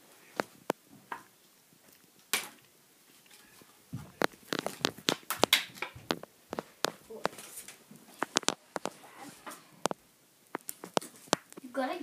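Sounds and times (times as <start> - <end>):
playing cards slapped on wooden floor: 4.6 - 7.4.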